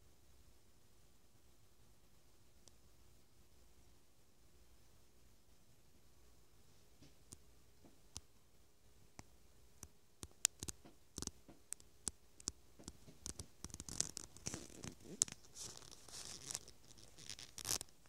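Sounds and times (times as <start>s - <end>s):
crinkling rustling: 12.9s - 18.0s.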